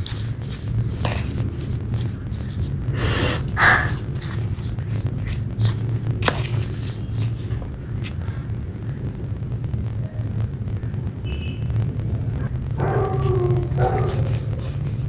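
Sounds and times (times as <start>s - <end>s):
wet clay squelching: 0.0s - 8.5s, 12.8s - 15.0s
steady low hum: 0.0s - 15.0s.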